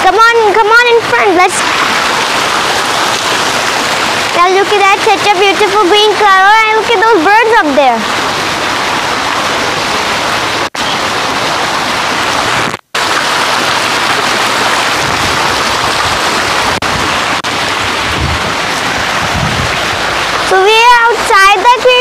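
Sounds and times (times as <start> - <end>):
waterfall splashing into pool: 1.0 - 22.0.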